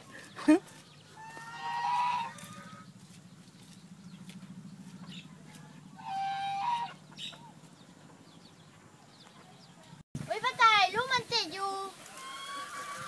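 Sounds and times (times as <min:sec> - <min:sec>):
poultry call: 0:01.1 - 0:03.0, 0:05.0 - 0:07.6, 0:12.0 - 0:13.0.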